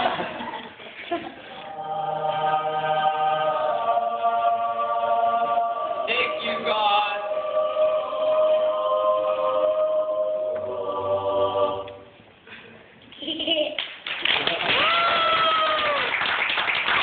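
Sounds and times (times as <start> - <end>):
slow choir-like background music: 1.4 - 12.4.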